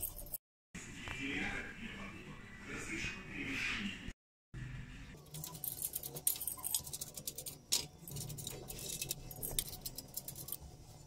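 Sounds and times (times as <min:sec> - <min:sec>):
metal trays clinking and rattling: 0:05.3 - 0:10.6.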